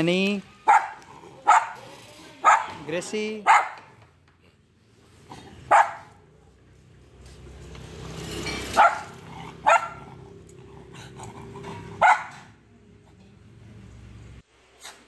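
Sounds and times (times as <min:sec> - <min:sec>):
small dogs barking: 0:00.5 - 0:04.0, 0:05.2 - 0:06.5, 0:08.7 - 0:12.7.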